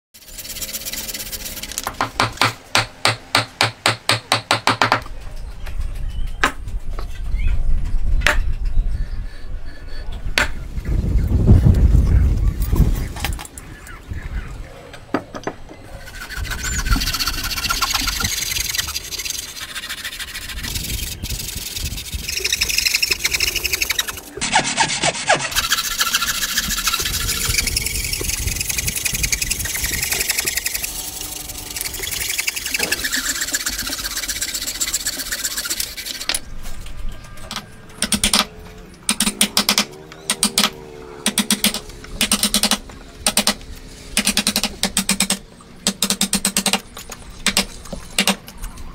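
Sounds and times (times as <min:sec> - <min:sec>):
hand plane and saw rasping wood: 0:00.2 - 0:02.5, 0:16.0 - 0:36.3.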